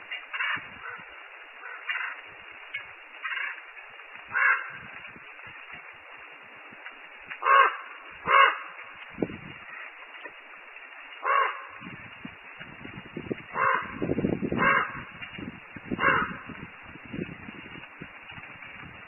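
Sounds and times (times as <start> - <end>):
rain falling: 0.0 - 19.0
crow cawing: 0.3 - 2.2, 3.2 - 3.6, 4.3 - 4.9, 7.4 - 8.8, 11.2 - 11.8, 13.5 - 14.0, 14.6 - 15.1, 16.0 - 16.5.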